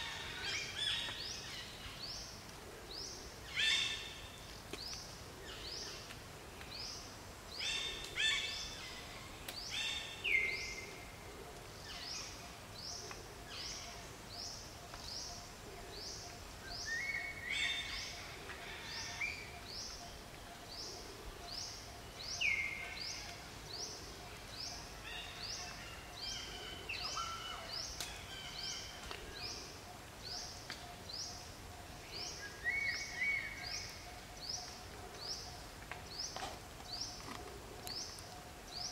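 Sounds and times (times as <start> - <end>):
bird calls: 11.9 - 38.9.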